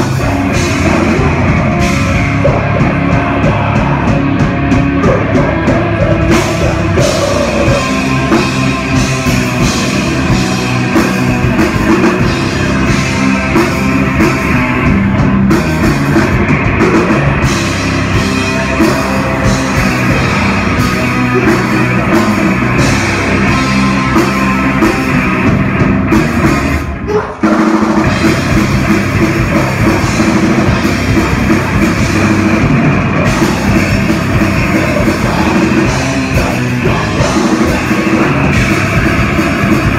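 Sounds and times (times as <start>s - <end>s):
vocalist singing: 0.0s - 11.2s, 33.2s - 39.9s
heavy metal band playing live: 0.0s - 39.9s.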